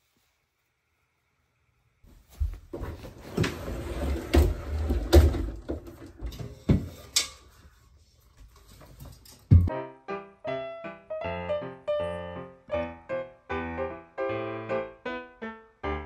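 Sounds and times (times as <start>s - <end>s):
rustling: 2.0s - 9.6s
wardrobe doors rolling open: 3.0s - 6.6s.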